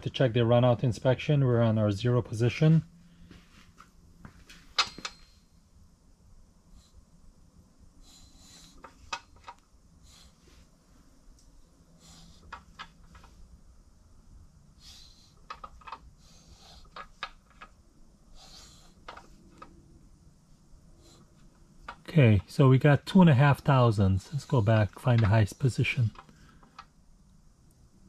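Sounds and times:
soft breathing: 3.0 - 4.4, 6.6 - 9.2, 9.9 - 13.5, 14.7 - 17.5, 18.1 - 19.8, 20.5 - 22.0, 26.1 - 26.9.

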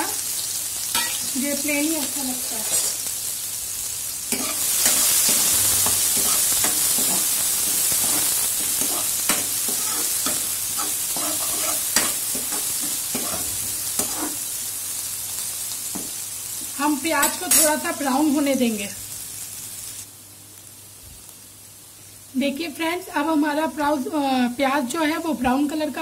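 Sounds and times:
onions sizzling in hot oil: 0.0 - 26.0
metal spoon scraping a pan: 0.9 - 1.3, 2.4 - 3.1, 4.3 - 14.4, 17.2 - 17.8.

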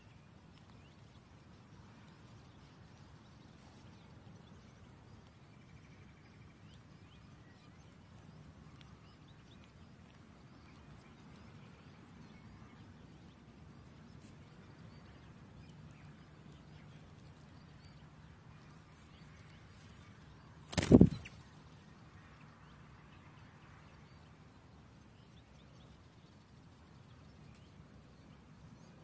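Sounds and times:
nestlings chirping: 20.6 - 21.5.

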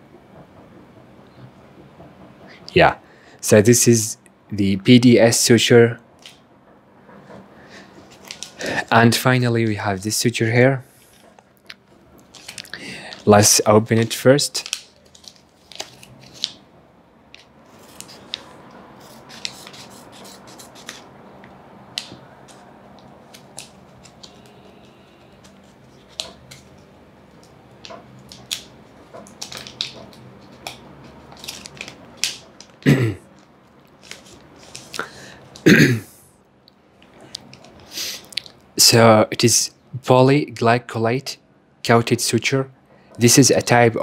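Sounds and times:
suture packet crinkling: 8.1 - 8.6, 12.2 - 16.6, 22.0 - 35.6
packet crackling rustles: 8.1 - 8.8, 12.2 - 16.6, 17.3 - 21.1, 21.9 - 35.6.

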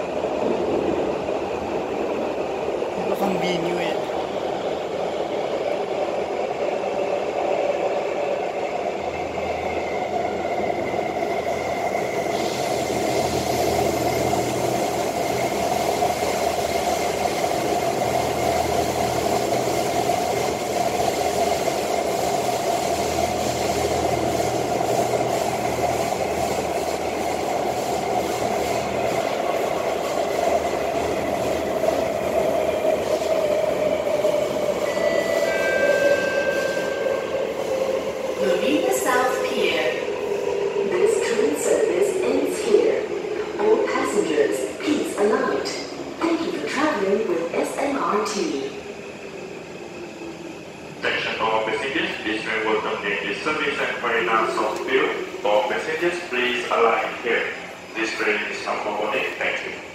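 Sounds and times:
train rumble and rolling noise: 0.0 - 59.9
steady high tone: 34.5 - 39.3.

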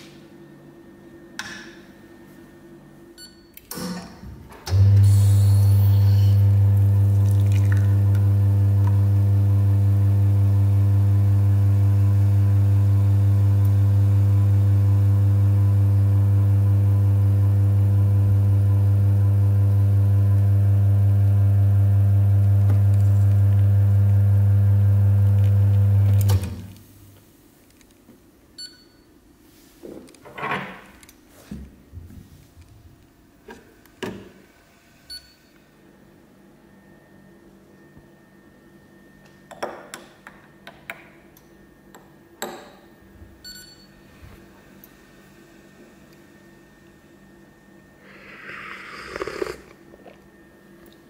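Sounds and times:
espresso machine pump humming: 4.7 - 26.7, 48.0 - 50.2.

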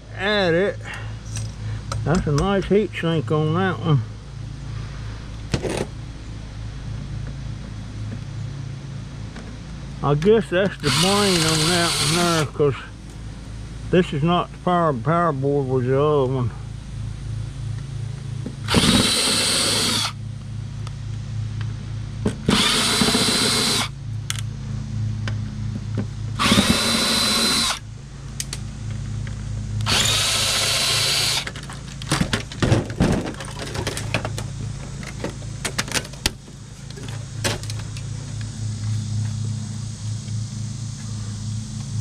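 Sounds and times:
cordless drill whining: 10.8 - 12.4, 18.7 - 20.2, 22.5 - 23.9, 26.4 - 27.8, 29.8 - 31.5.

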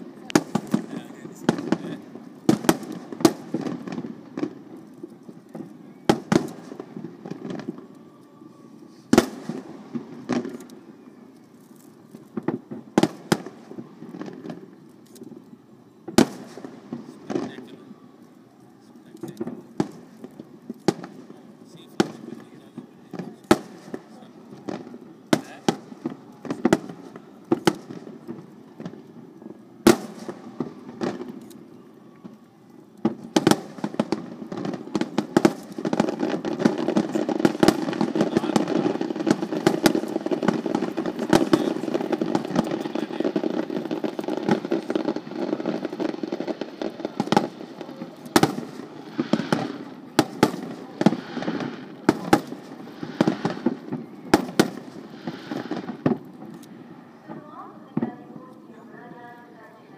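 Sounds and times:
firework shells bursting: 33.0 - 56.8.

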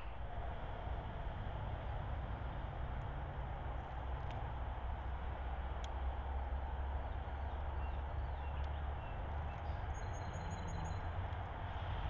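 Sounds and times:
low rumble: 0.0 - 11.6
faint high bird chirps: 7.8 - 11.1.

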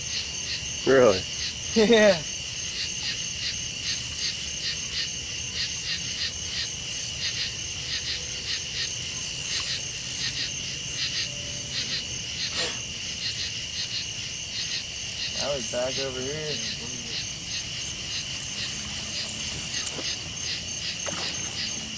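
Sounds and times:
insect high-pitched trill: 0.0 - 21.9
insects chirping: 0.0 - 21.9.

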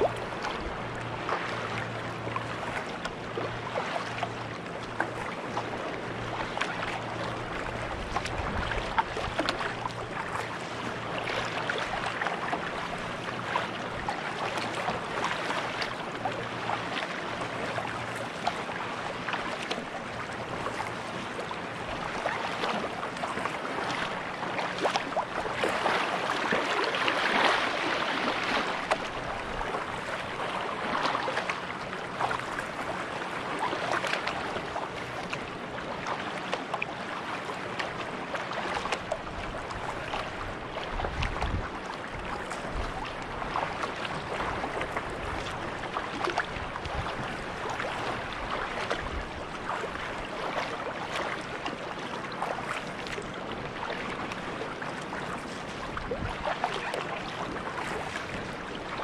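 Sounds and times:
water dripping along hull: 0.0 - 22.3
paddle splashing in water: 0.0 - 59.0.

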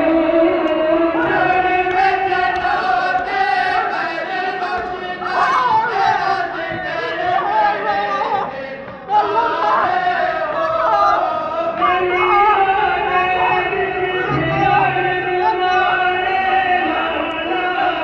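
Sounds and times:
men chanting together: 1.1 - 18.0.

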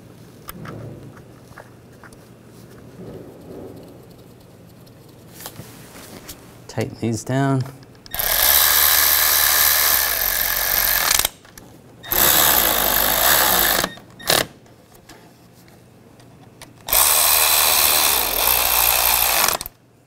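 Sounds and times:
cordless ratchet driving bolts: 8.0 - 11.3, 12.0 - 14.5, 16.9 - 19.8.

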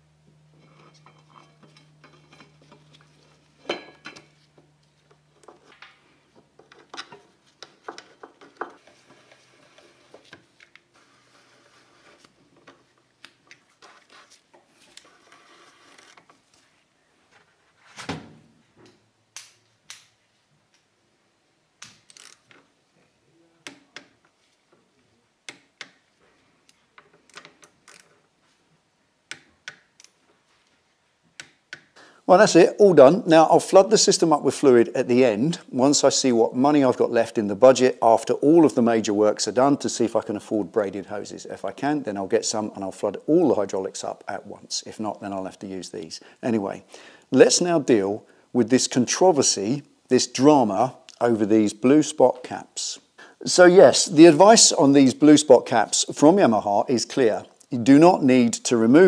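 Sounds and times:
faint steady hum: 0.0 - 17.8.

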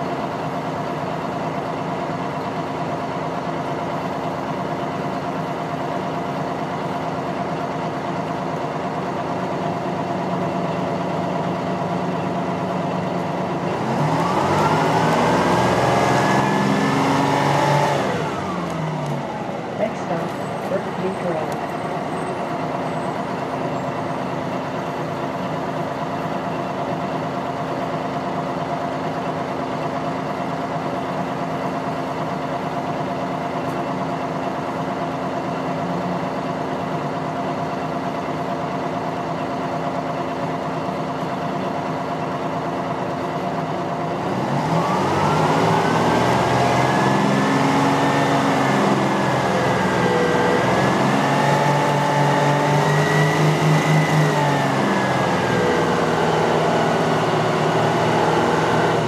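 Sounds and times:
bus diesel engine idling: 0.0 - 59.0
bus engine revving: 0.0 - 59.0.

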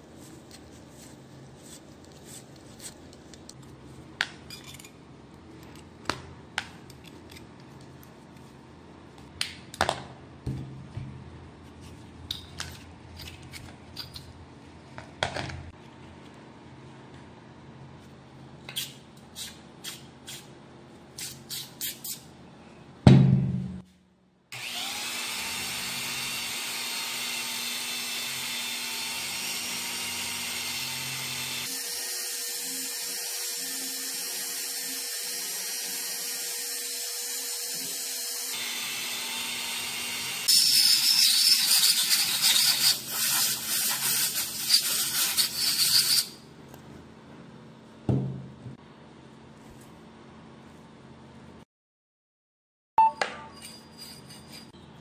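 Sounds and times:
metal tools tapping and scraping: 4.4 - 5.0
loud thump: 23.1 - 23.9, 48.1 - 48.5.

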